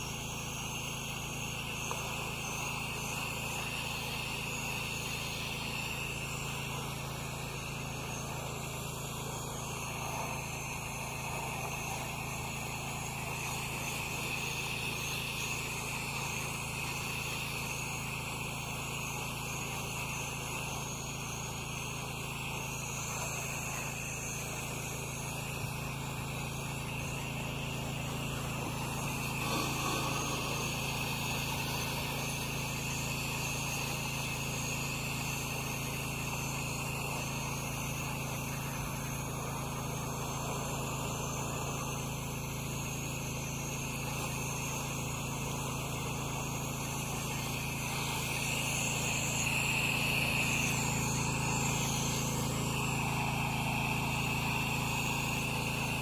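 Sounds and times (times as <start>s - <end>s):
low engine drone: 21.6s - 34.4s
water spray hissing on metal: 27.9s - 34.1s.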